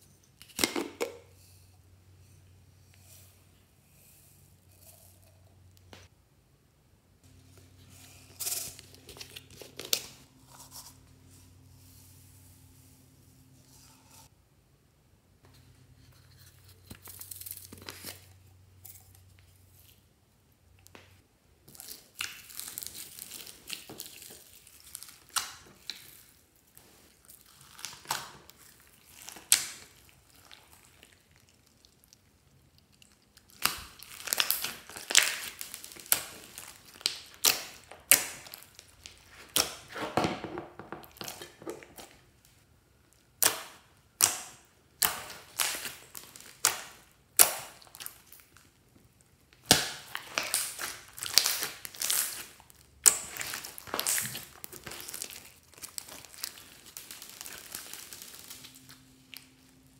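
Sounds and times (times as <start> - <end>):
slime crackling and popping: 27.4 - 39.9, 43.3 - 48.7, 49.6 - 59.8.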